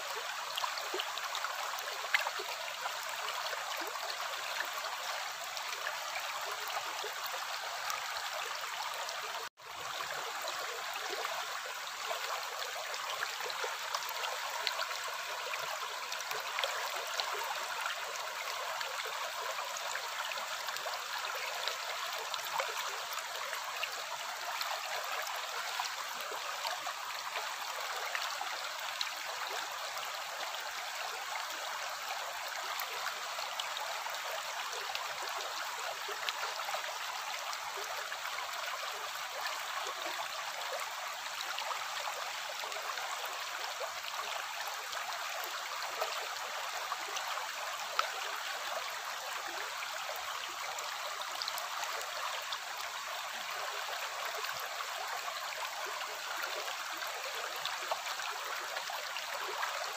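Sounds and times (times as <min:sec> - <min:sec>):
stream rippling over stones: 0:00.0 - 0:59.9.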